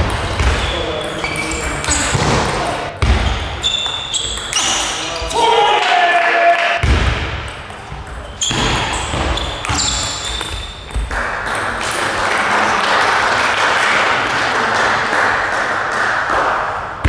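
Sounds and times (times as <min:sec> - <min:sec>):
spectators applauding: 0:11.7 - 0:16.7.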